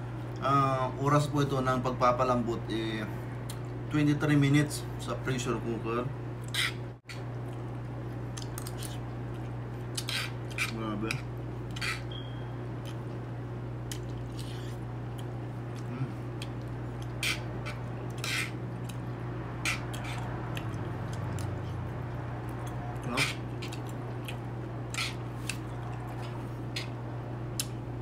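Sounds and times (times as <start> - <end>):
steady low hum: 0.0 - 28.0
mouth sounds: 23.0 - 23.4.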